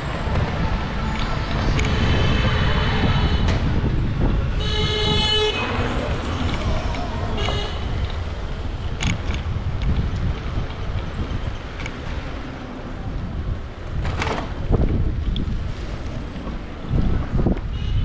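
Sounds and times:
low traffic rumble: 0.0s - 18.0s
vehicle horn honking: 1.8s - 3.6s, 4.6s - 5.9s, 7.4s - 8.0s.

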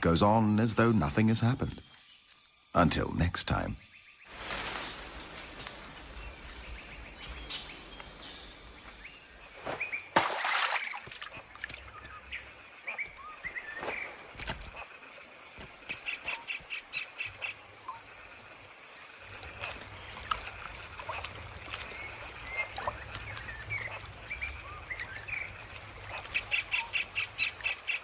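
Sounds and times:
birds chirping and calling: 0.2s - 10.1s.

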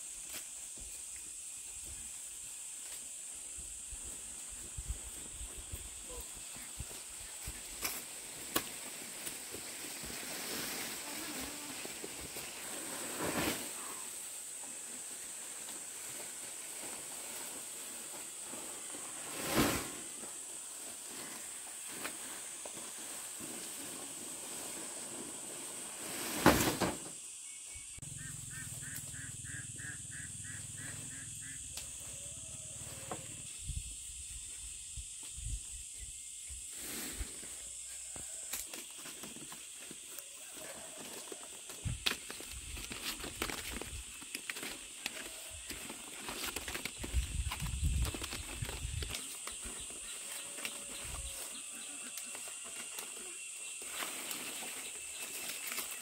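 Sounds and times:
dry palm fronds rustling: 4.0s - 27.1s, 38.2s - 56.0s.

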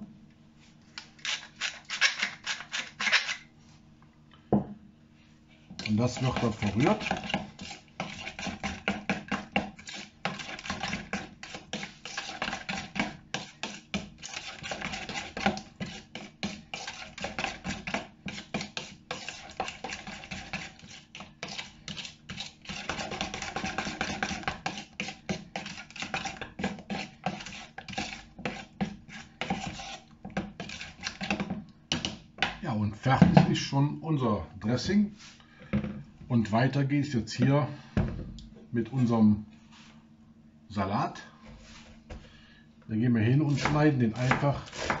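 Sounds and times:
spoon scraping plastic bowl: 1.0s - 3.5s, 5.8s - 32.1s, 43.5s - 45.0s.

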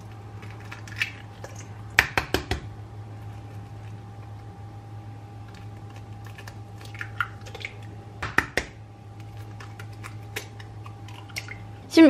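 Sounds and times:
egg cracking on steel bowl: 0.0s - 2.8s, 5.5s - 11.7s.

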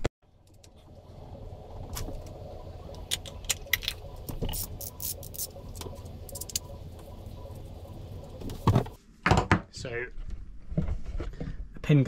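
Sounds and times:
steady low hum: 0.2s - 9.0s.

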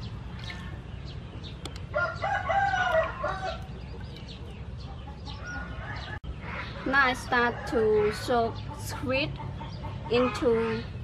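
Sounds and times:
rooster crowing: 1.9s - 3.6s.

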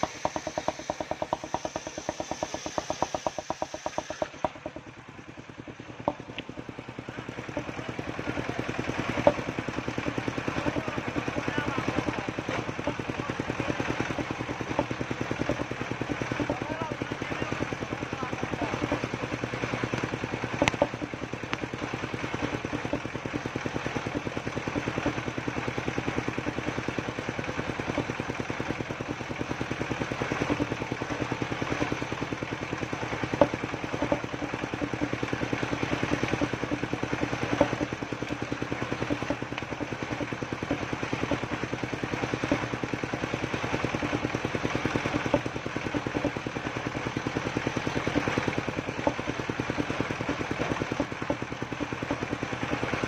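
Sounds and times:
timber knocking on saw table: 0.0s - 4.9s, 6.0s - 6.6s, 20.6s - 21.1s, 33.3s - 35.2s, 36.0s - 38.0s, 45.0s - 46.4s
sawmill engine running: 0.0s - 53.0s.

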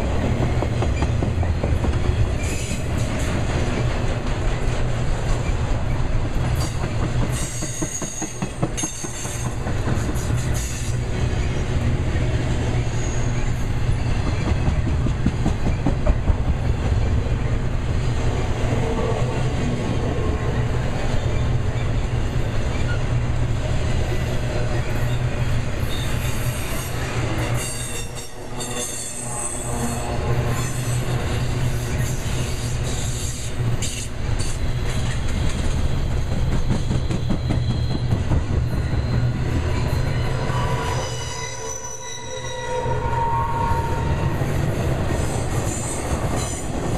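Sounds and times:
freight train wheels rumbling on rail: 0.0s - 46.9s
high-pitched wheel squeals: 38.8s - 44.4s.

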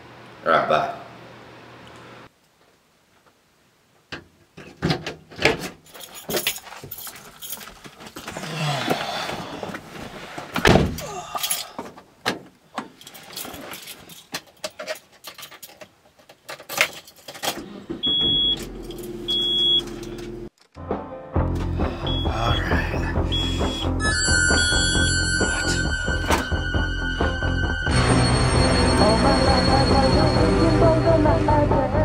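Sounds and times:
keys jangling: 5.8s - 7.9s, 13.0s - 17.6s
dashboard chime beeping: 19.3s - 19.9s, 22.0s - 31.2s.

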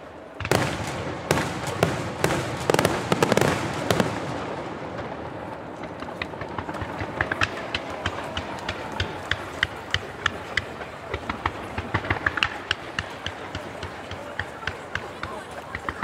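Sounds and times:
fireworks bangs: 0.4s - 8.4s
fireworks crackling: 0.4s - 9.7s.

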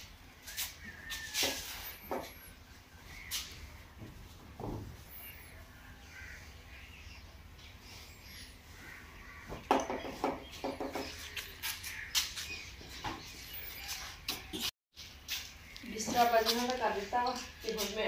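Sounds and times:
small birds chirping: 0.0s - 4.1s, 5.0s - 18.0s
crow cawing: 6.0s - 6.5s.

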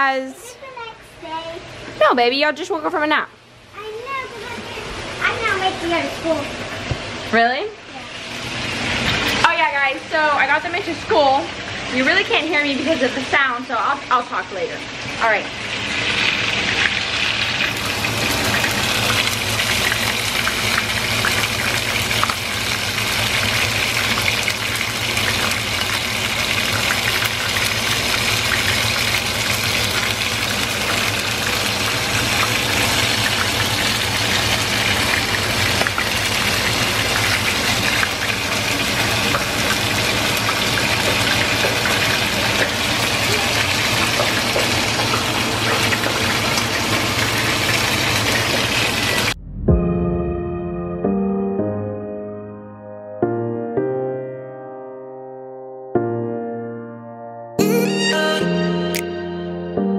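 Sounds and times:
chicken frying in a pan: 7.9s - 49.4s.

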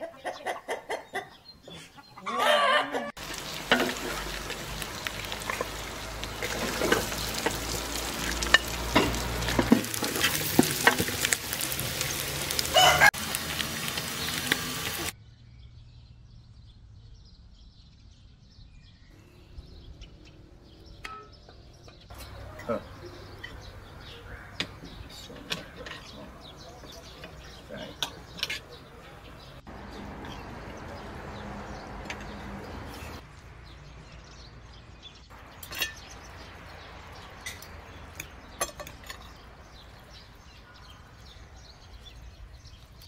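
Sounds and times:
meat sizzling in a pan: 3.2s - 15.1s
utensil scraping a pan: 5.4s - 12.0s.

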